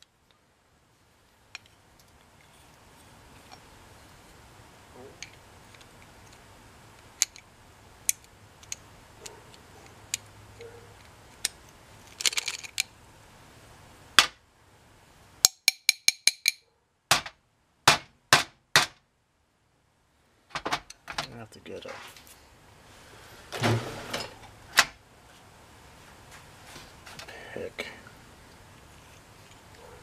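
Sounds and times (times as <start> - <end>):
loud metal knocks: 17.1 - 19.0.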